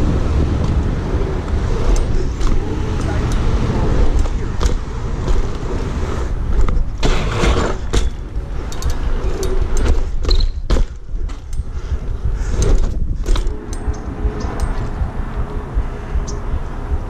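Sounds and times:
tyres rumbling on pavement: 0.0 - 13.6
wind on microphone: 0.0 - 17.0
bike chain rattling: 0.1 - 15.0.

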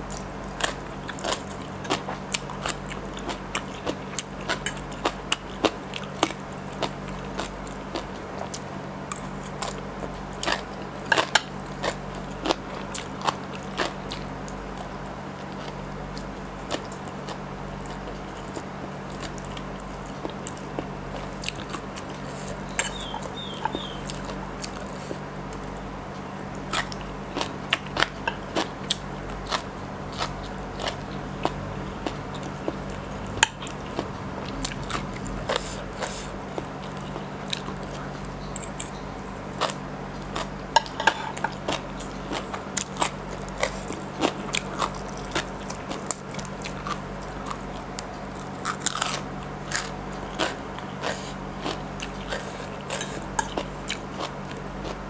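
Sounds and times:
biting and chewing: 0.0 - 55.0
steady low hum: 0.0 - 55.0
sharp crunches: 26.7 - 47.6.

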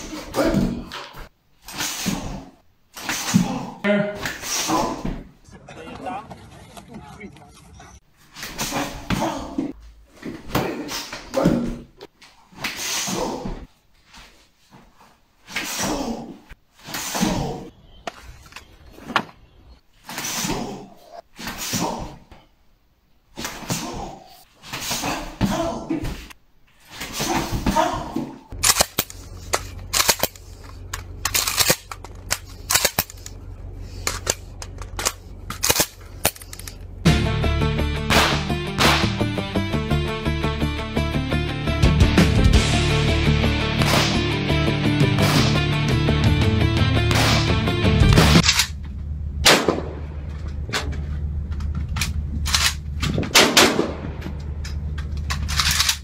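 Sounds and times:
steady low rumble: 28.5 - 39.5, 42.6 - 56.0
music: 37.1 - 48.4
gunshots sharp cracks: 38.1 - 39.2, 47.1 - 47.6, 49.4 - 50.2, 53.3 - 54.2
rifle shots: 49.4 - 50.1, 53.3 - 54.2.

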